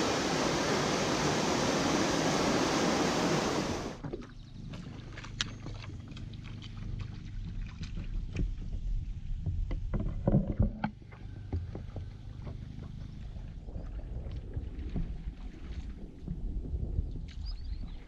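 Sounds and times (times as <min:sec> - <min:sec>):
paddle splashing in water: 0:00.0 - 0:09.3.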